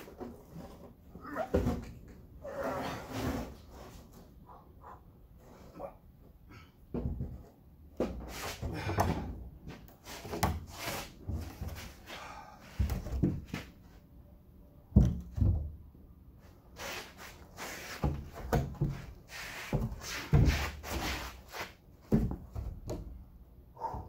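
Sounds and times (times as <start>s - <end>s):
wood slabs scraping: 16.8s - 21.8s.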